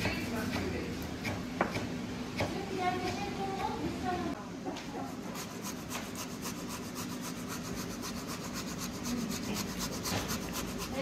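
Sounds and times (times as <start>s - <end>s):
carrot grated on hand grater: 5.4s - 11.0s.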